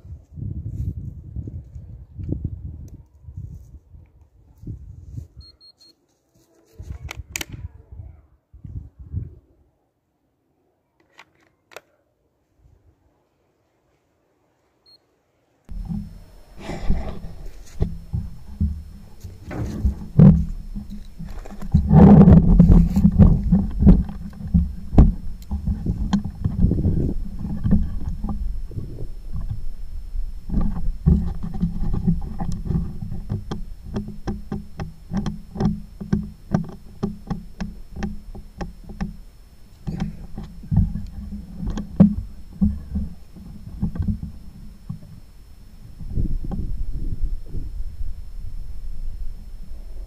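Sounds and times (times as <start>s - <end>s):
wind rumbling on microphone: 0.0s - 5.5s, 6.8s - 9.7s, 15.7s - 50.0s.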